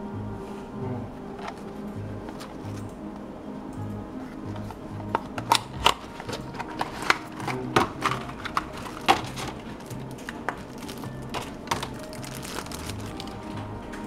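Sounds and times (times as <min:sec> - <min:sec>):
background music: 0:00.0 - 0:14.0
packaging clicks and crinkles: 0:04.6 - 0:14.0.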